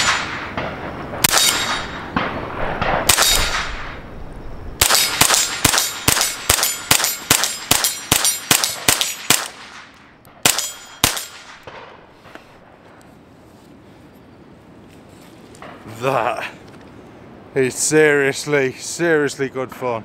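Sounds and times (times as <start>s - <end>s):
suppressed rifle shots: 0.0s - 4.0s, 4.8s - 12.0s.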